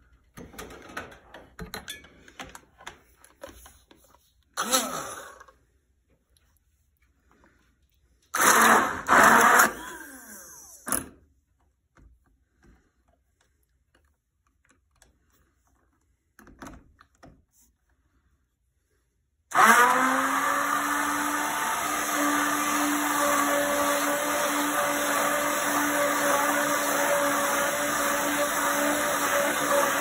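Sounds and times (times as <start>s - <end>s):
immersion blender humming: 4.6s - 5.6s, 8.4s - 10.8s, 19.5s - 30.0s.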